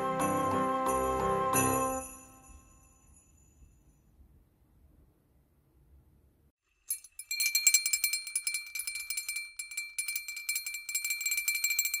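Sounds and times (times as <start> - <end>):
jingle bells shaken: 0.0 - 3.7, 6.7 - 12.0.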